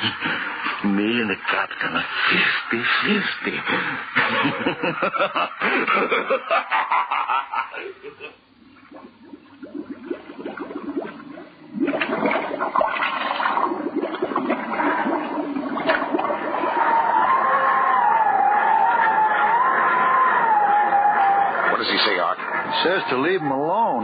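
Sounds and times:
bubbling gurgling water: 0:08.4 - 0:18.4.

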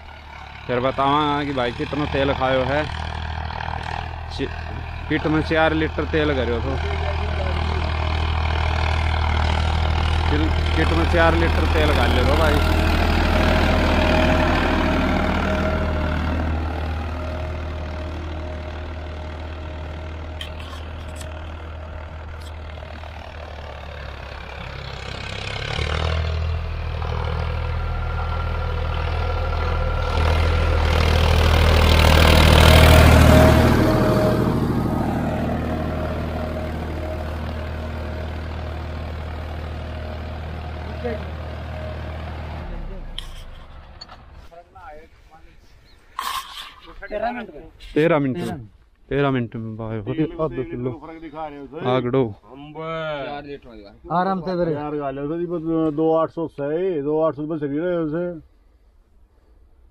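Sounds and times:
tractor diesel engine under load: 0:00.0 - 0:45.0.

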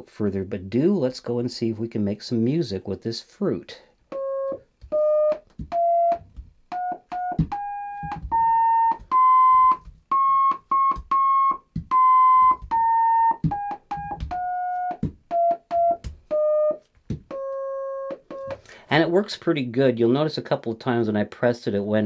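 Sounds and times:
electronic sine-wave notes: 0:04.1 - 0:18.6.

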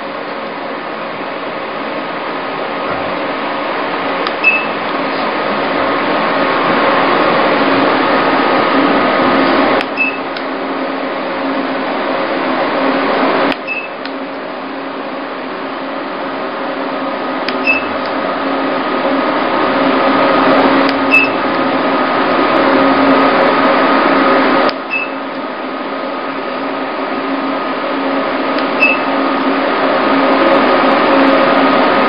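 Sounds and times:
machine whirring hum: 0:00.0 - 0:32.0
short high beep: 0:04.4 - 0:04.7, 0:10.0 - 0:10.2, 0:17.6 - 0:17.9, 0:21.1 - 0:21.4, 0:24.9 - 0:25.2, 0:28.8 - 0:29.1.

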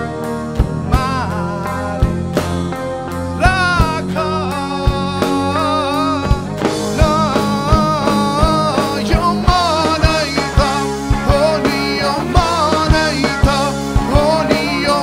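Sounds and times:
drum kit beat: 0:00.0 - 0:15.0
person singing: 0:00.6 - 0:02.6, 0:03.3 - 0:15.0.

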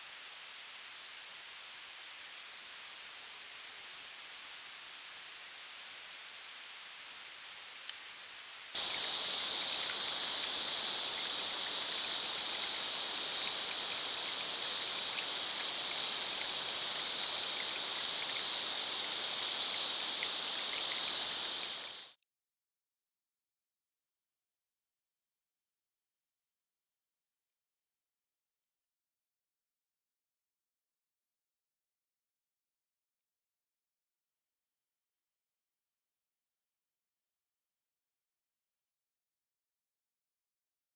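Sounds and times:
outdoor hiss: 0:00.0 - 0:22.2
single tick: 0:07.8 - 0:08.1.

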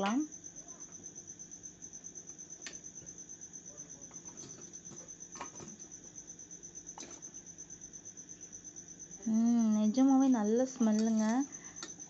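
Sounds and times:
cricket chirping: 0:00.0 - 0:12.0.

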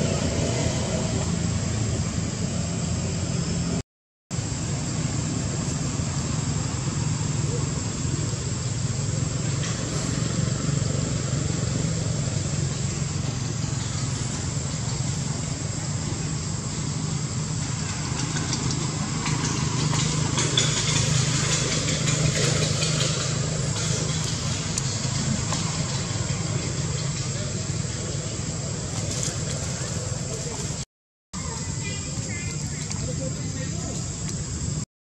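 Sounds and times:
motor idling hum: 0:04.4 - 0:30.8.

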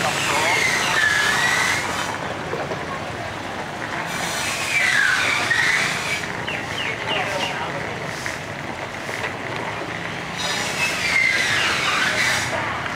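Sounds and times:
high gliding squeal: 0:00.0 - 0:02.1, 0:04.1 - 0:07.0, 0:10.4 - 0:12.6
traffic hiss: 0:00.0 - 0:12.9
wind: 0:00.0 - 0:12.9.

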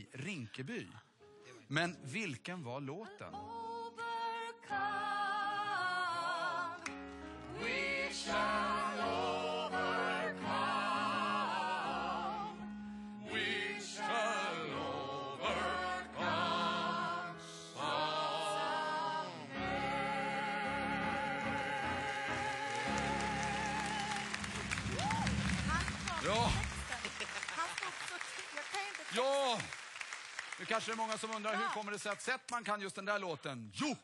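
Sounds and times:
piano: 0:03.3 - 0:27.2
people singing together: 0:04.2 - 0:06.8, 0:07.5 - 0:24.4.

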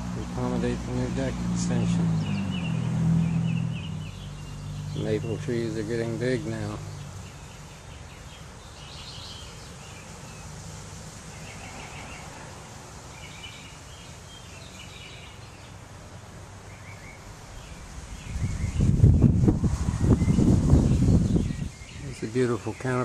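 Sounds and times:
songbirds chirping and trilling: 0:00.0 - 0:23.0
wind buffeting microphone: 0:17.5 - 0:22.7.

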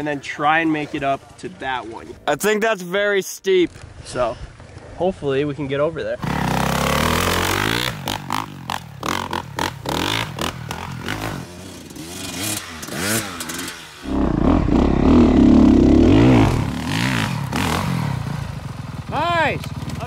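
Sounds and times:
dirt bike engine revving: 0:06.2 - 0:19.2.

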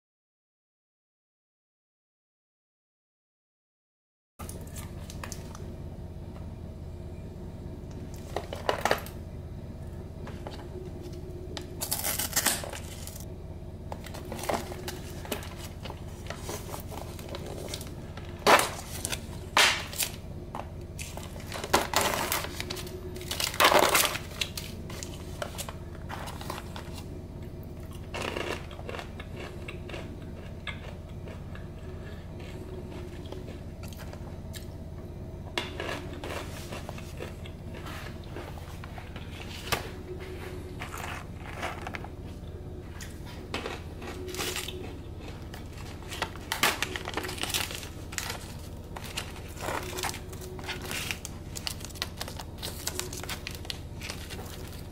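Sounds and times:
faint steady hum: 0:04.4 - 0:54.9
plastic tub crackling and crinkling: 0:43.5 - 0:54.9.

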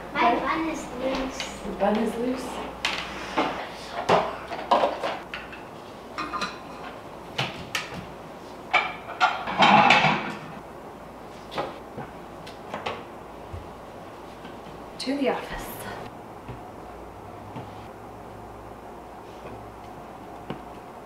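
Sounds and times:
dishes clattering: 0:02.9 - 0:07.0, 0:08.7 - 0:10.6
bowls and cups clinking: 0:04.1 - 0:07.0.

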